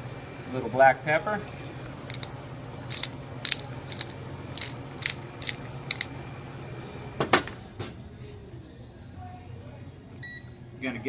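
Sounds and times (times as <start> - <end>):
pepper grinder grinding: 1.5 - 6.2.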